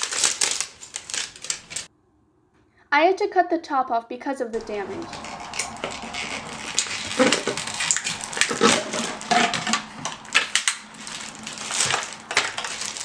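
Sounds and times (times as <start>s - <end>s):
plastic bag rustling and crackling: 0.0s - 1.9s, 4.6s - 13.0s.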